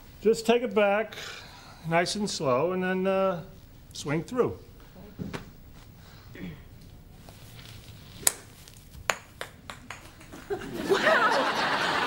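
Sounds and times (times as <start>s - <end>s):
people laughing: 10.3s - 12.0s.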